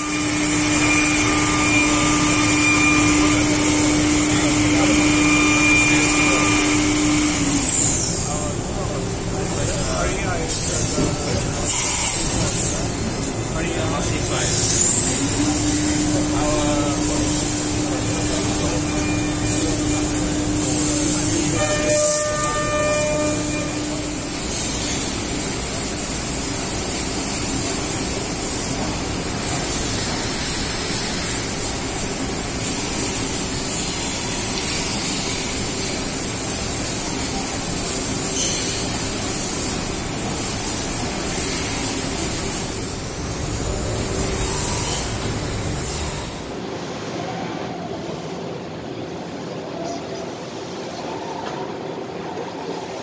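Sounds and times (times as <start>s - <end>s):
low machine hum: 0.0s - 11.7s, 12.3s - 26.7s
laser cutting machine hiss: 0.0s - 46.6s.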